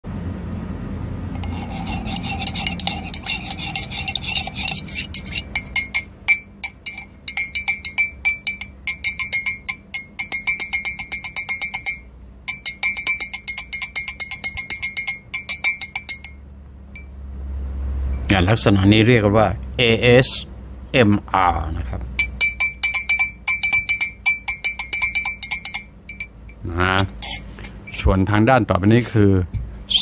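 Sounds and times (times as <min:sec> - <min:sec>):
rapid sharp glassy clicks: 0:01.4 - 0:16.4, 0:22.2 - 0:26.4.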